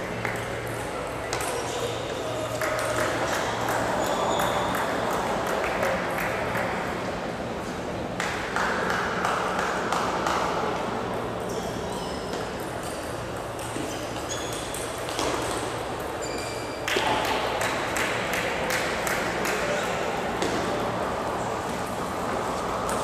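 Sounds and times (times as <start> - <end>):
table tennis balls clicking: 0.0 - 6.8, 11.1 - 16.2
murmur of sports hall: 0.0 - 23.0
short high squeaks: 13.8 - 14.9, 16.2 - 16.9.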